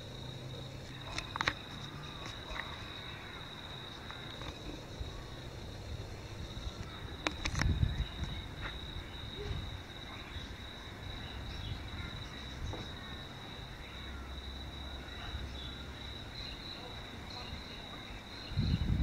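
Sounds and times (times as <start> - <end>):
crickets trilling: 0.0 - 19.0.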